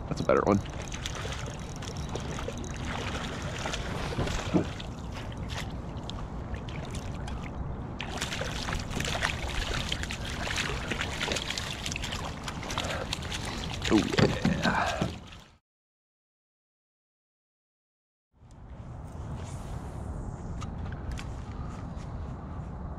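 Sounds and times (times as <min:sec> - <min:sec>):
fish splashing in water: 0:00.6 - 0:07.4, 0:08.0 - 0:15.6
steady low rumble: 0:18.4 - 0:22.9.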